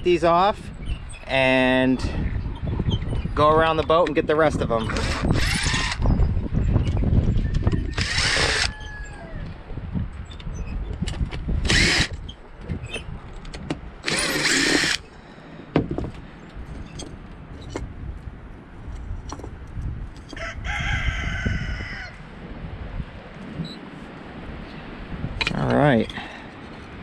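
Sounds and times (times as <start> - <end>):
impact driver whining: 7.8 - 8.7, 11.6 - 12.2, 14.0 - 15.0
handling knocks and clicks: 10.4 - 14.8, 18.9 - 20.4, 25.4 - 27.0.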